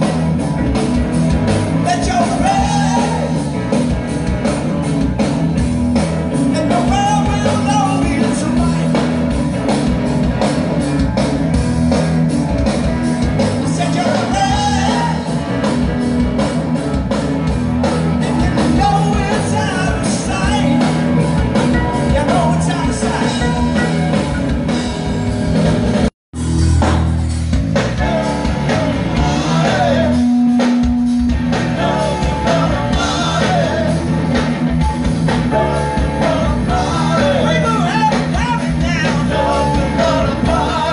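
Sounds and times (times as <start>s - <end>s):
live rock band playing: 0.0s - 40.9s
person singing lead vocal: 1.8s - 3.5s, 6.4s - 9.1s, 13.6s - 15.4s, 18.3s - 21.2s, 21.9s - 23.8s, 27.9s - 30.8s, 31.5s - 34.5s, 35.5s - 40.9s.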